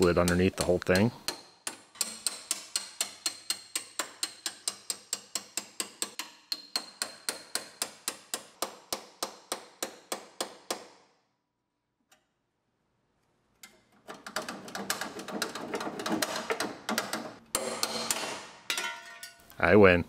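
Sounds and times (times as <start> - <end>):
hammer striking chisel on metal: 0.0 - 11.0.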